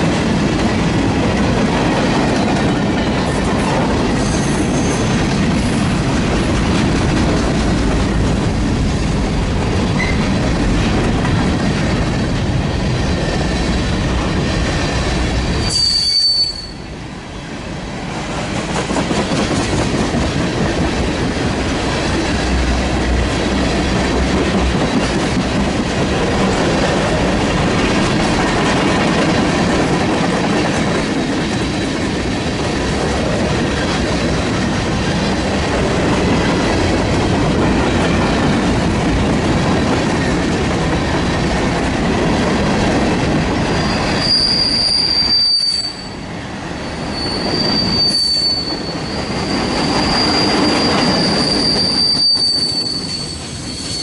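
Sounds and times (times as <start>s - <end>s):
freight train cars rolling: 0.0s - 54.0s
high-pitched wheel squeal: 15.6s - 16.9s, 43.8s - 46.2s, 47.0s - 54.0s.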